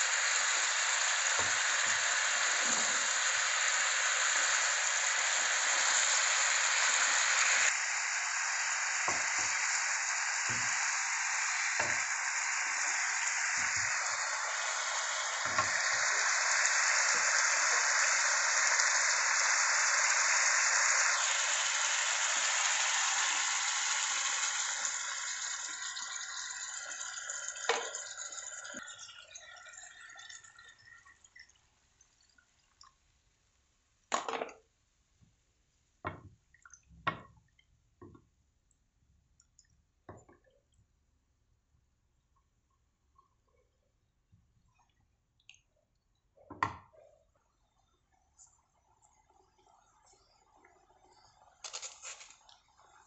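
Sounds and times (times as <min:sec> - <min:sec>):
sauce sizzling and bubbling: 0:00.0 - 0:31.3.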